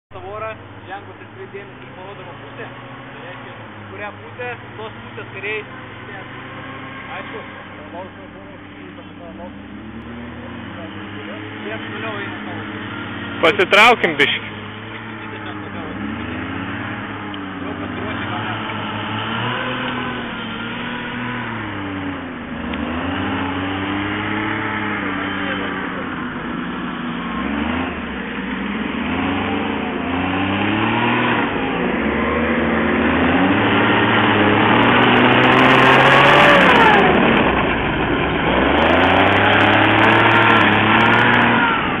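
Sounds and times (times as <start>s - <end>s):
armoured vehicle engine revving: 0.1s - 42.0s.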